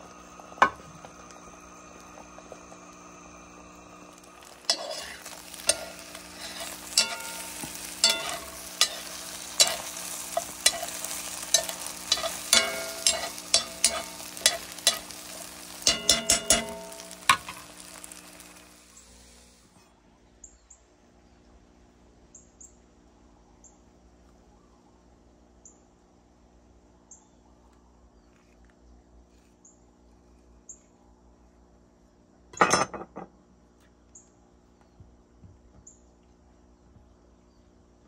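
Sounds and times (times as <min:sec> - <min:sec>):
low hum: 0:00.0 - 0:19.6.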